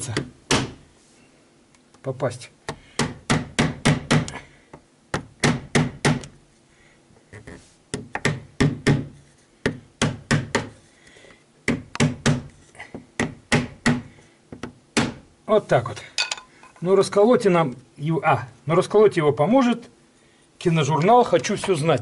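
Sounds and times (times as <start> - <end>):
hammer tapping plastic: 7.9 - 10.7.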